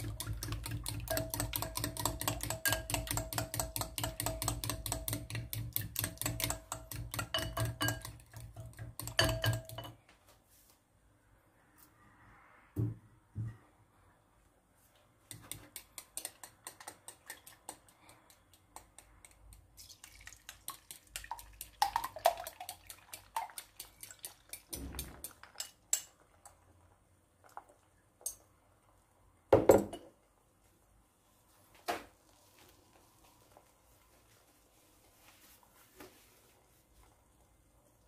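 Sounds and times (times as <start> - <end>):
fork clinking against glass bowl: 6.1 - 8.2, 9.0 - 10.0.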